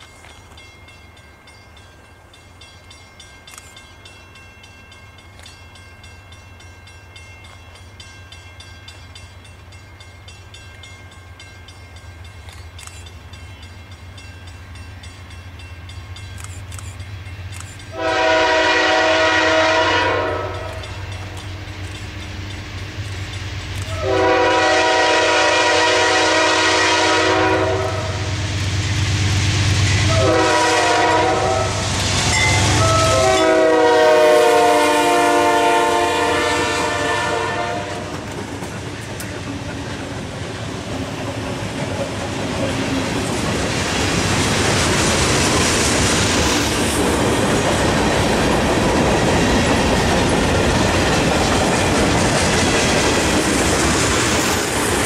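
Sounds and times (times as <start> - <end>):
train air horn blasts: 17.9 - 21.0, 23.9 - 28.6, 29.9 - 38.2
locomotive engine rumble: 36.9 - 55.0.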